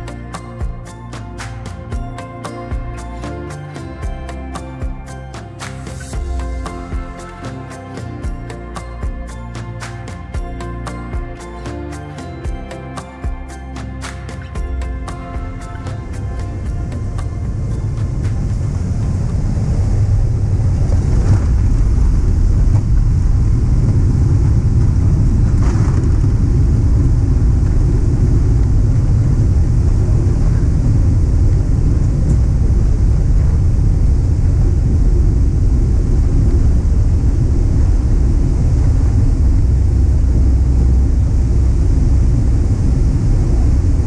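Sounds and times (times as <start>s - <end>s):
aircraft cabin rumble: 15.4s - 44.0s.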